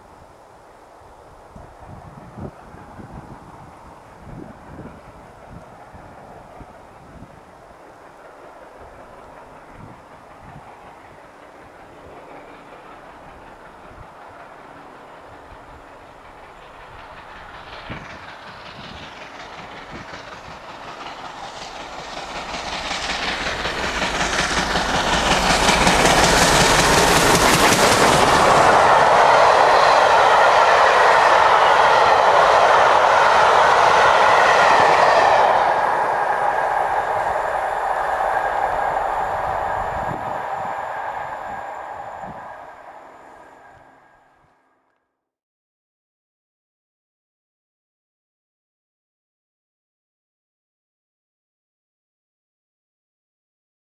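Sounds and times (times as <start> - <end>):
steam train passing at speed: 0.0 - 44.6
wheels running on rails: 1.6 - 43.8.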